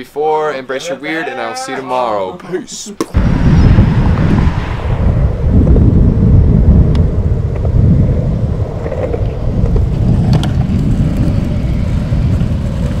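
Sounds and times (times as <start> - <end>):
low rumble of street ambience: 3.2 - 13.0.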